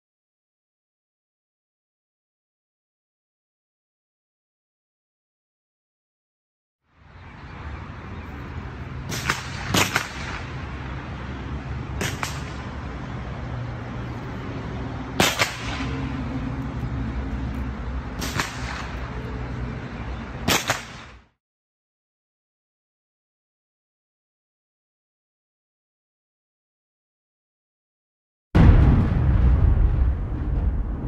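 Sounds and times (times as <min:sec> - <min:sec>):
rifle shots: 0:09.1 - 0:10.5, 0:15.2 - 0:15.9, 0:18.2 - 0:19.0, 0:20.4 - 0:21.2
low background rumble: 0:28.6 - 0:31.0.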